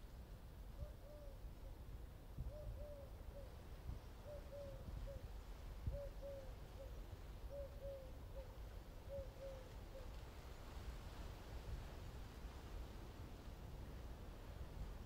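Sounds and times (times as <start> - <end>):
bird hooting call: 0.8 - 1.4, 2.4 - 3.6, 4.2 - 5.3, 5.9 - 10.1.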